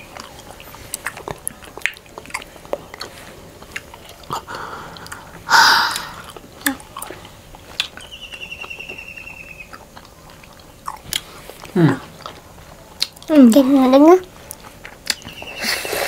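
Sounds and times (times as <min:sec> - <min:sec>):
wet chewing mouth sounds: 0:00.0 - 0:08.8, 0:09.6 - 0:13.3, 0:14.4 - 0:16.0
faint high chirping trill: 0:08.0 - 0:09.8.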